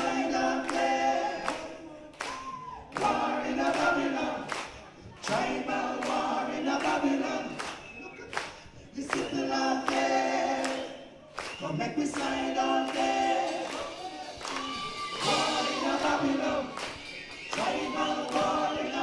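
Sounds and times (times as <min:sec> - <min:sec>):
voices singing in harmony: 0:00.0 - 0:19.0
sharp beat hits: 0:13.5 - 0:18.9.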